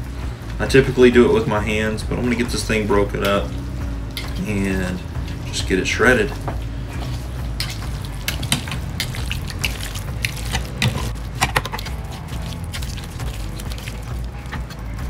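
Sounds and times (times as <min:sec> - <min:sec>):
meat tearing wet squelching: 0:06.9 - 0:15.0
meat claws clicking: 0:07.5 - 0:15.0.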